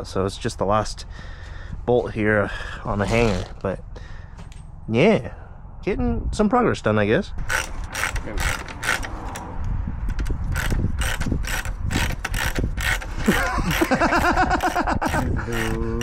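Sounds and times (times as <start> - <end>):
ratchet wrench clicking: 7.4 - 9.5, 10.1 - 15.9.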